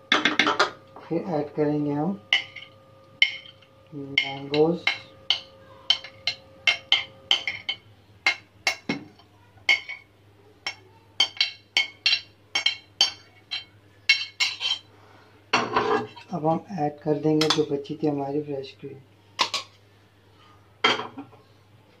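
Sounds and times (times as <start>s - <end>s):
metal spoon clinking on glass bowl: 2.3s - 9.0s.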